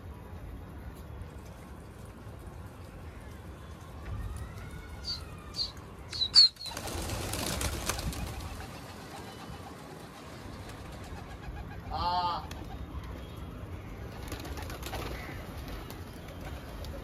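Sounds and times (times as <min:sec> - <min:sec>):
pigeon wings flapping: 0:06.6 - 0:11.7, 0:14.1 - 0:17.0.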